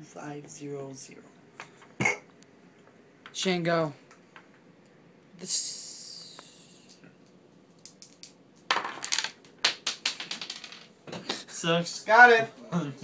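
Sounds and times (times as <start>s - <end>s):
game pieces clicking on board: 7.8s - 10.9s.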